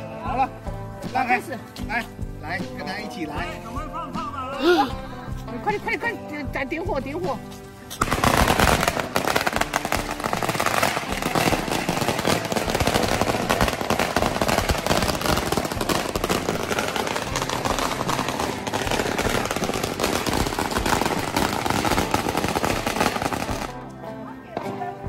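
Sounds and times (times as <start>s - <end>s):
firecrackers crackling: 7.2s - 23.9s.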